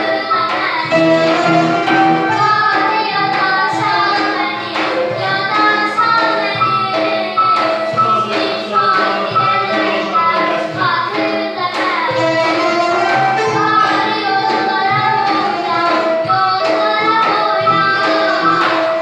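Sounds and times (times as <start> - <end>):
frame drums beat: 0.1 - 19.0
plucked lute melody: 0.9 - 5.9.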